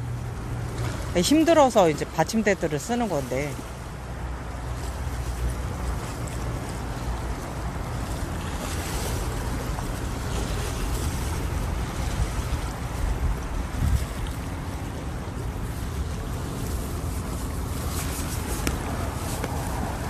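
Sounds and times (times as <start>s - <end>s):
small sea waves against wall: 0.0s - 20.0s
wind rumbling on microphone: 2.8s - 20.0s.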